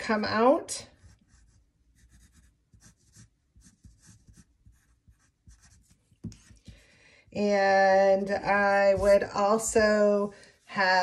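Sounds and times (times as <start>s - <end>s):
pencil scratching on paper: 0.8s - 6.9s
pencil tap: 4.3s - 6.8s.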